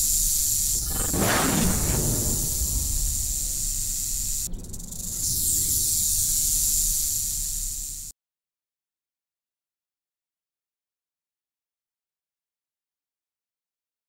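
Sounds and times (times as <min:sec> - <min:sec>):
snake hissing: 0:00.0 - 0:08.1
low rumble: 0:00.8 - 0:08.1.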